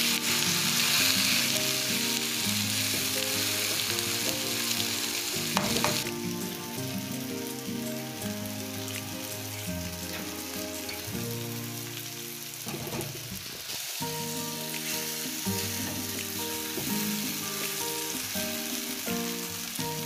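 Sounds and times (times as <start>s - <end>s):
soft background music: 0.0s - 20.0s
vegetables sizzling in a frying pan: 0.0s - 20.0s
knock: 5.6s - 6.1s.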